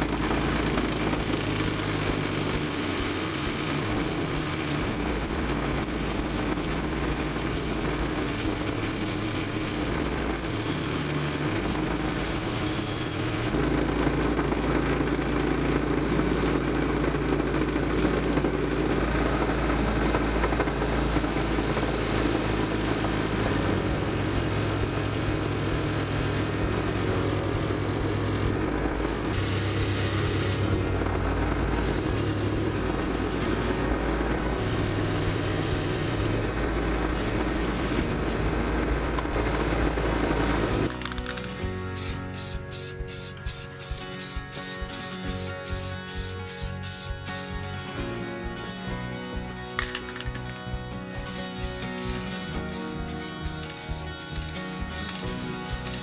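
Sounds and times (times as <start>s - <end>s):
wire brush scratchy hiss: 0.0s - 15.7s, 18.3s - 56.0s
bench grinder motor hum: 0.0s - 48.1s, 49.0s - 56.0s.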